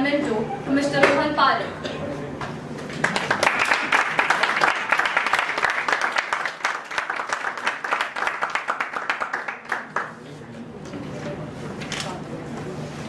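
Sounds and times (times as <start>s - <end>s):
audience applauding: 2.9s - 10.3s.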